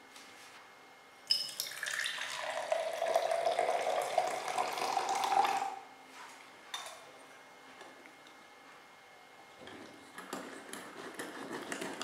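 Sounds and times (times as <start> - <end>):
milk pouring into glass: 1.3 - 5.8.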